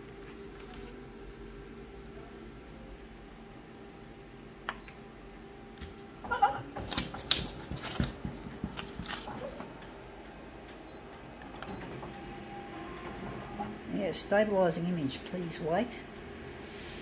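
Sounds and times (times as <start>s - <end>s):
photocopier humming: 4.3s - 15.5s
paper rustling and sliding: 6.8s - 10.1s.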